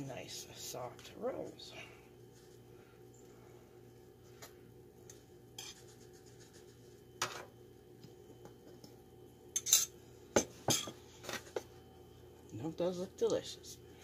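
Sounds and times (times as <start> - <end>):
spoon scraping foil pan: 5.6 - 6.7.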